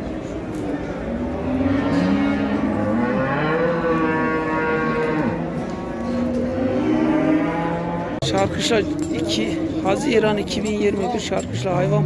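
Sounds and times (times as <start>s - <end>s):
cattle mooing: 1.2s - 8.2s.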